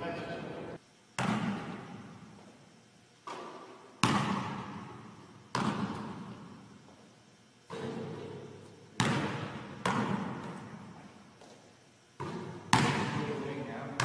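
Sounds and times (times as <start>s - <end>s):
basketball bouncing on gym floor: 1.2s - 2.5s, 3.2s - 7.0s, 7.6s - 11.6s, 12.2s - 14.0s.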